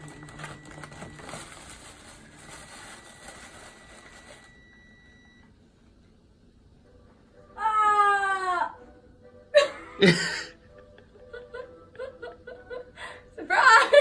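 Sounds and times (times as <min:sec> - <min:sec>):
tissue paper rustling: 0:00.0 - 0:04.7.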